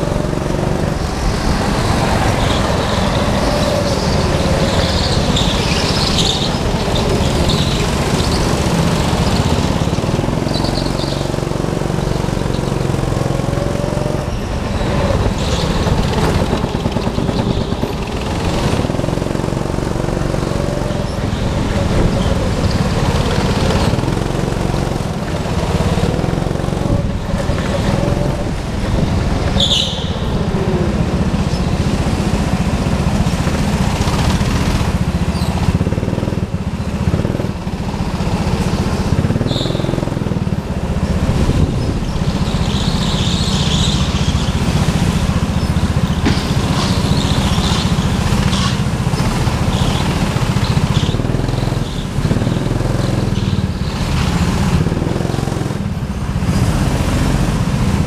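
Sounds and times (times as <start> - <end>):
go-kart engine running: 0.0 - 58.0
brief high squeals: 29.6 - 30.4.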